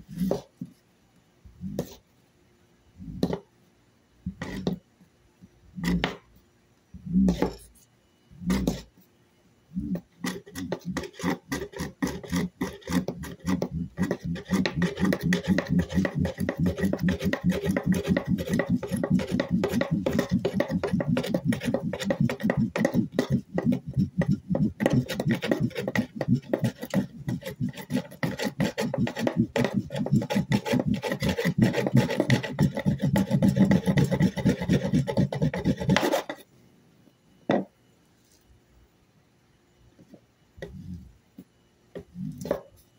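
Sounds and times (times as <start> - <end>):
wooden board rubbing rasping: 9.9 - 36.4.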